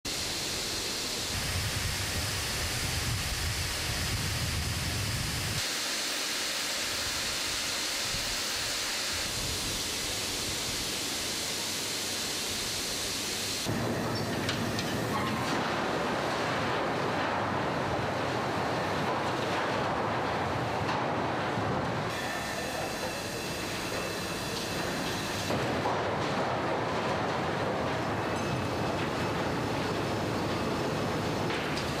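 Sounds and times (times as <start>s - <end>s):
rumble of wagon dumper tipping load: 13.7s - 32.0s.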